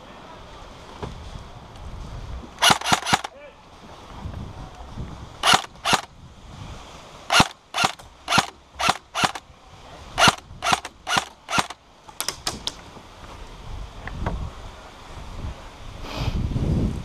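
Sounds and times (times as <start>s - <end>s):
airsoft rifle shots: 2.6s - 3.3s, 5.4s - 6.1s, 7.3s - 9.4s, 10.2s - 12.7s.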